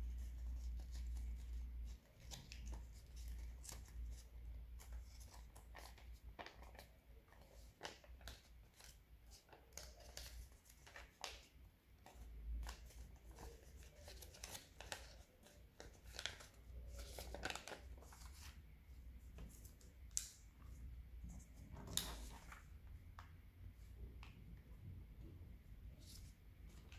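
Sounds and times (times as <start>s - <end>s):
paper crinkling and rustling: 0.0s - 18.6s, 21.3s - 22.9s, 26.0s - 26.9s
sharp paper crackles: 12.6s - 18.6s.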